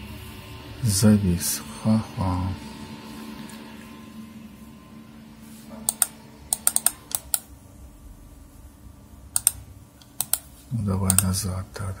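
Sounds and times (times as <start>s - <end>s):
faint steady hum: 0.0s - 12.0s
computer mouse clicks: 5.9s - 7.5s, 9.3s - 10.5s, 11.1s - 11.3s.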